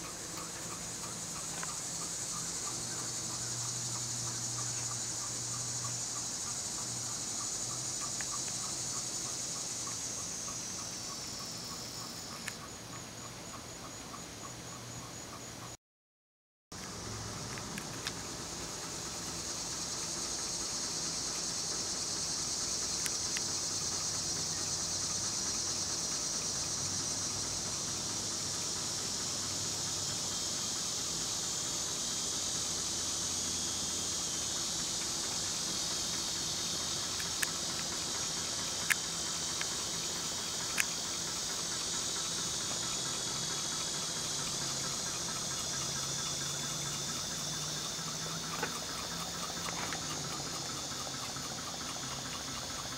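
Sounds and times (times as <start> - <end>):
fan faint low hum: 0.0 - 15.7, 16.8 - 52.9
sharp clicks: 35.0 - 41.8.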